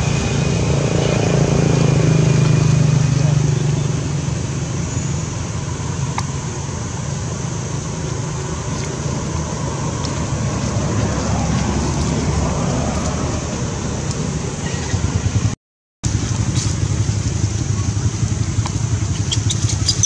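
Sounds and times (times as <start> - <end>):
low rumble of motor traffic: 0.0 - 20.0.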